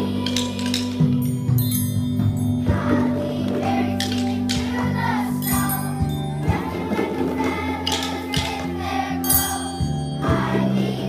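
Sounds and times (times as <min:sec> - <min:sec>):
children's choir singing: 0:00.0 - 0:01.3, 0:02.6 - 0:11.0
musical accompaniment: 0:00.0 - 0:11.0
triangles and handheld bells ringing: 0:00.6 - 0:03.0, 0:05.4 - 0:06.5, 0:09.2 - 0:10.4.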